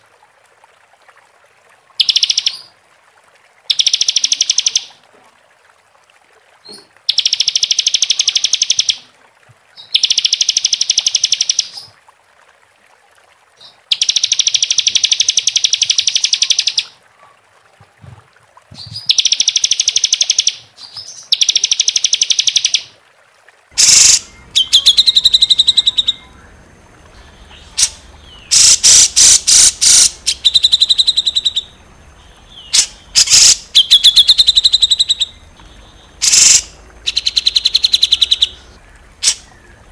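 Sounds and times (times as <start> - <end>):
background hiss: 23.7 - 39.9
short bird calls: 23.8 - 39.9
songbird rattling trills: 23.8 - 39.9
sharp clicks: 27.8 - 31.5, 39.2 - 39.5.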